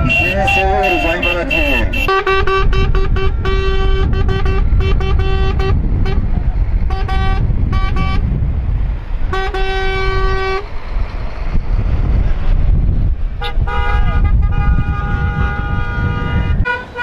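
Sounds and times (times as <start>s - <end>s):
vehicle horns honking: 0.0s - 8.3s, 9.3s - 10.7s, 13.4s - 17.0s
low rumble of vehicles: 0.0s - 17.0s.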